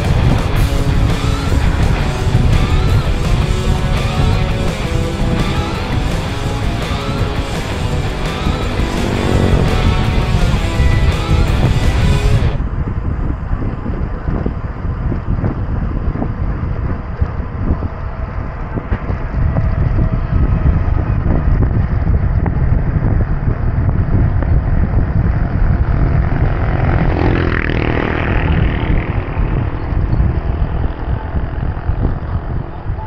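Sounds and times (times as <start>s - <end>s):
motor vehicle passing: 0.0s - 12.6s, 24.9s - 32.6s
bicycle road noise: 0.0s - 33.0s
wind rumble on microphone: 0.0s - 33.0s.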